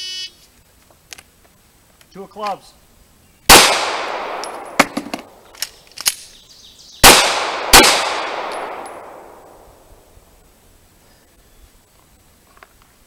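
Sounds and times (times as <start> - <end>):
handgun shots echoing: 3.5 - 6.2, 7.0 - 9.6.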